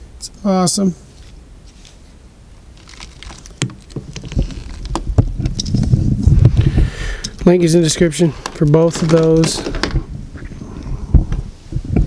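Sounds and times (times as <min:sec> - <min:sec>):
camera rubbing and knocking: 0:03.0 - 0:06.4.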